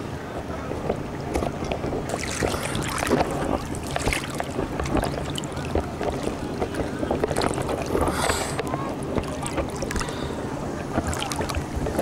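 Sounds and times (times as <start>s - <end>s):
sea water lapping and splashing: 0.0s - 12.0s
wind buffeting microphone: 0.0s - 12.0s.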